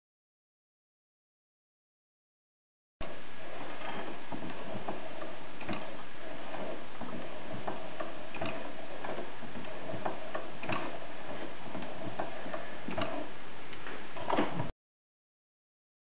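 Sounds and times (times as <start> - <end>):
engine mechanism clicking: 5.6 - 14.4.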